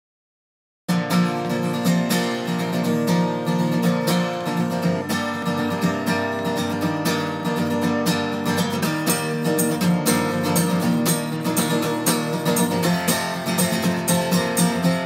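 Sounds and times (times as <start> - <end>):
acoustic guitar music: 0.9 - 15.0.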